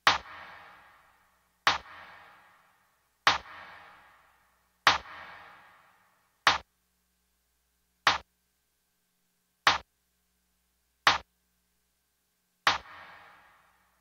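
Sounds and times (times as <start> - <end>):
dry clap drum hits: 0.0 - 0.8, 1.7 - 2.3, 3.3 - 4.0, 4.9 - 5.5, 6.5 - 6.7, 8.1 - 8.3, 9.7 - 9.9, 11.1 - 11.3, 12.7 - 13.4.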